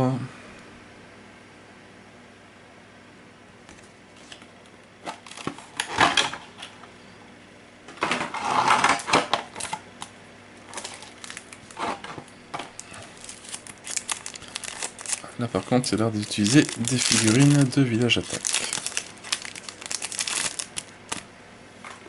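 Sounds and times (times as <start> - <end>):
cards and packaging handled: 3.7 - 5.9, 10.7 - 21.2.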